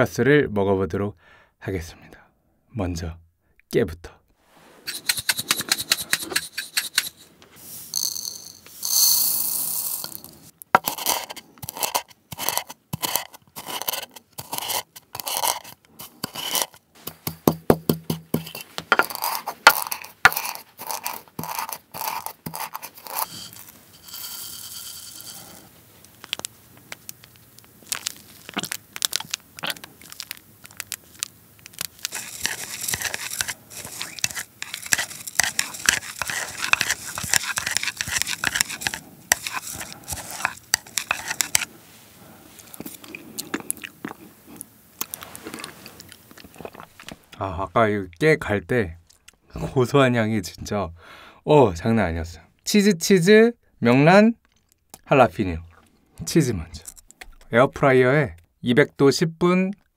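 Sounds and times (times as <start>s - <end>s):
pestle grinding seeds in mortar: 4.8s - 41.7s
chopsticks stirring in ceramic dish: 10.8s - 17.4s, 18.1s - 25.7s, 31.7s - 41.7s.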